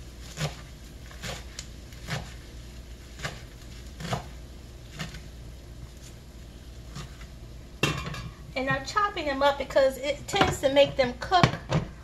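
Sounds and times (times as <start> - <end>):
knife chopping greens on wooden board: 0.2 - 2.4, 3.1 - 5.2.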